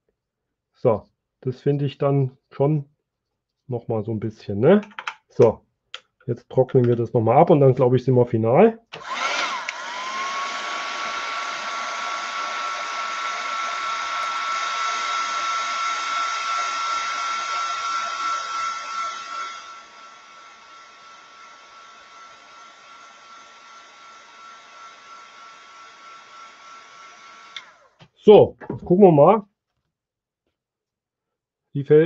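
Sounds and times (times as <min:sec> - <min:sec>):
heat gun blowing: 0:08.9 - 0:28.1.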